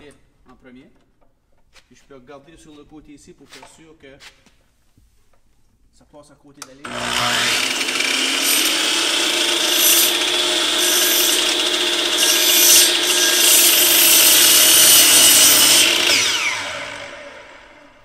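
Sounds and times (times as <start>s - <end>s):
miter saw cutting wood: 6.8s - 18.0s
saw blade winding down: 6.8s - 18.0s.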